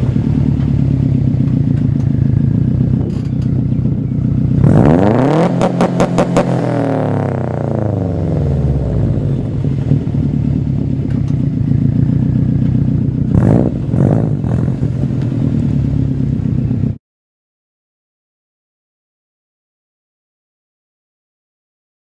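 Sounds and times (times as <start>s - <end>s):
car engine idling: 0.0s - 17.0s
engine throttle blips: 0.0s - 17.0s
car engine popping on rev limiter: 0.4s - 8.0s.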